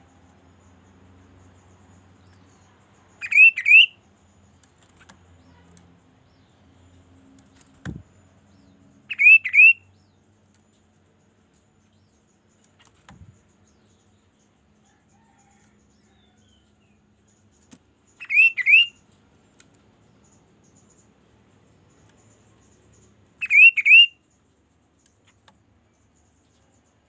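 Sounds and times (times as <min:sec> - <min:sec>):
bird whistled call: 0:03.2 - 0:04.0, 0:09.1 - 0:09.8, 0:18.2 - 0:19.0, 0:23.4 - 0:24.2.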